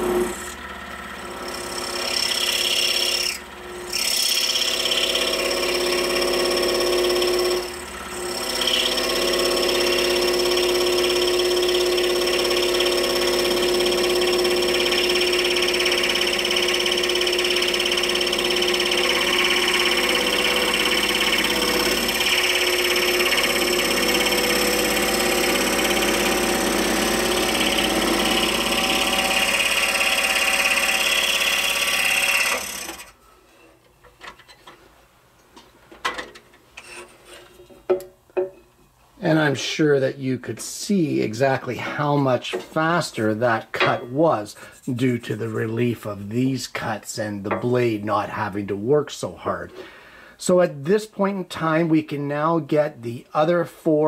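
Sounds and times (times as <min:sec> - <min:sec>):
scroll saw cutting wood: 0:00.0 - 0:33.2.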